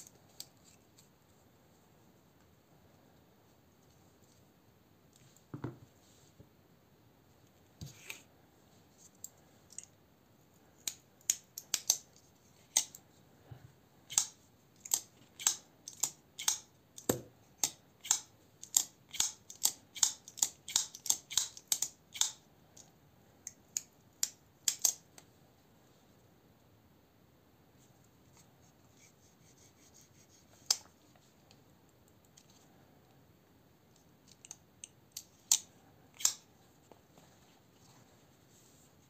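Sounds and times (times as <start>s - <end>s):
folding knife clicking open and shut: 10.9s - 12.1s, 14.1s - 22.4s, 23.8s - 25.0s, 34.3s - 36.4s.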